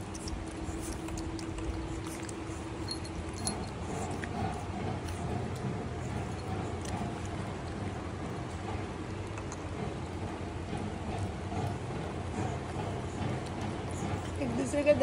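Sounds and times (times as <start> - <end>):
low background rumble: 0.0 - 15.0
small collar bells jingling: 2.8 - 4.5.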